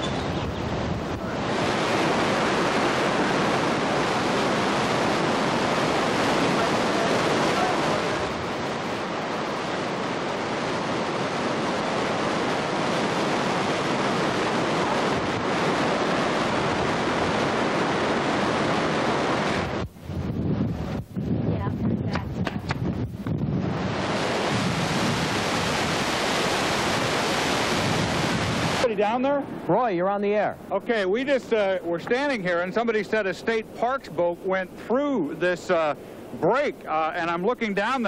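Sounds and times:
water rushing through spillway: 0.0s - 19.8s, 23.8s - 29.4s.

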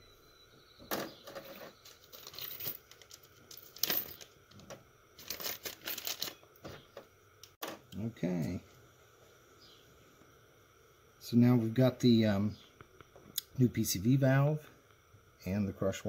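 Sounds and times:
crinkling rustles: 1.2s - 6.8s.

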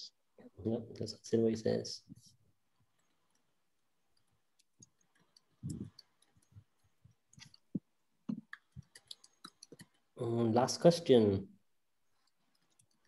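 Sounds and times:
faint clicks and ticks: 2.1s - 10.2s, 12.0s - 13.0s.

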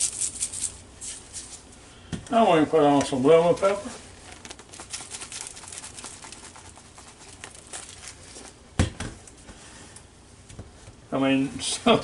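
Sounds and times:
spice shaker rattling: 0.0s - 1.6s, 4.3s - 8.5s.

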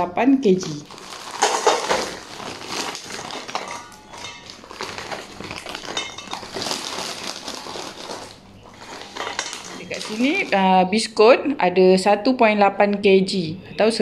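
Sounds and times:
plastic wrapper crinkling: 0.5s - 10.6s
biscuits clattering into metal bowl: 0.6s - 10.6s.

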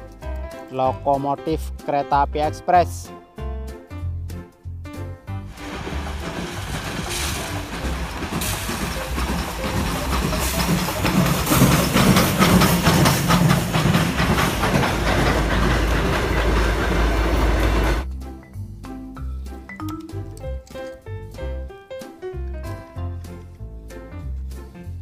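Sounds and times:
steam hissing: 5.5s - 18.0s
wheels clacking over rail joints: 5.5s - 18.0s
steam locomotive passing: 5.5s - 18.1s.

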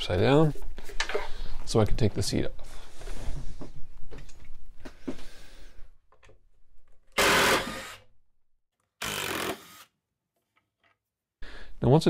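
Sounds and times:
cordless drill running: 7.2s - 8.0s, 9.0s - 9.9s.

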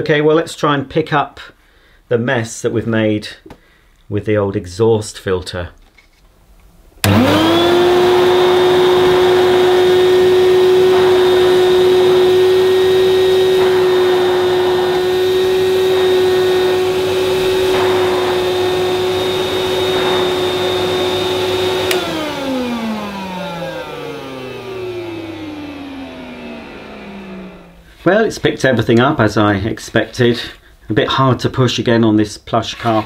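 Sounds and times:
vacuum switch click: 7.0s - 25.7s
vacuum cleaner motor whine: 7.0s - 28.0s.

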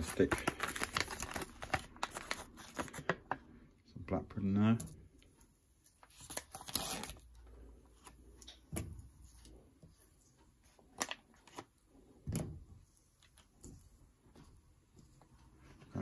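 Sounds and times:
plastic packaging crinkling: 0.0s - 3.3s.

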